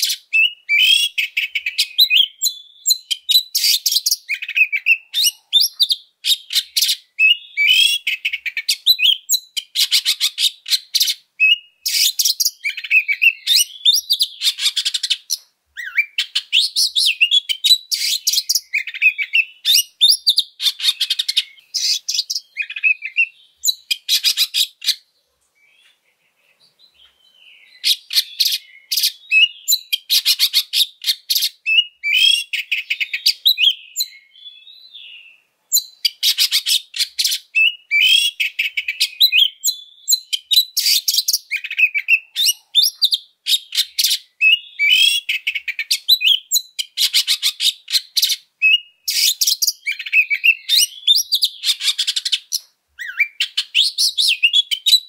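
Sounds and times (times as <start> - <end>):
bird singing harsh rasping notes: 0.0 - 55.0.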